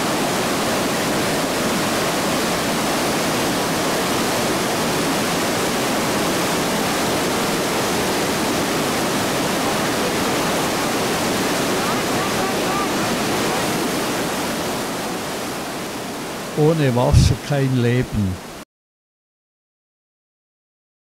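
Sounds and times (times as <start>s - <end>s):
waterfall crashing: 0.0s - 18.6s.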